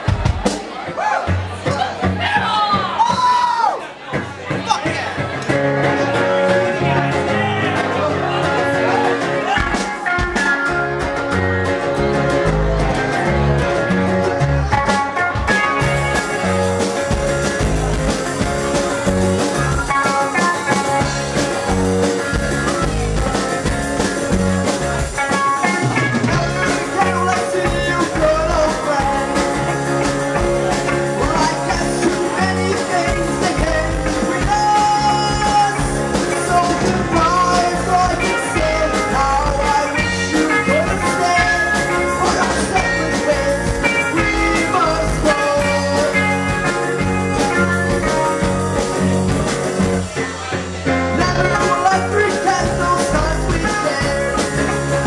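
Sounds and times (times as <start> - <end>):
live band playing: 0.0 - 55.0.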